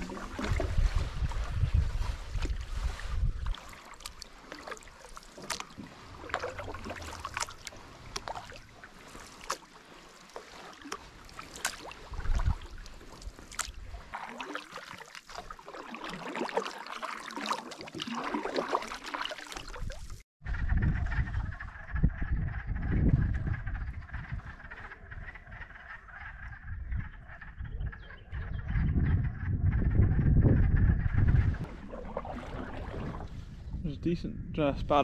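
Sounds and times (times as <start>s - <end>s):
canoe paddles pulling through water: 0.0s - 20.2s, 31.6s - 33.8s
water dripping off paddles: 2.3s - 20.2s.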